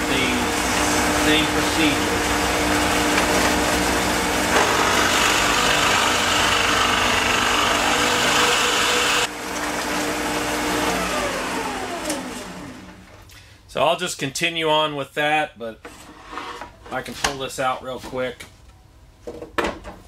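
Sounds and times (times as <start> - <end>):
drill press motor running: 0.0 - 13.1
drill bit boring into wood: 4.5 - 9.3.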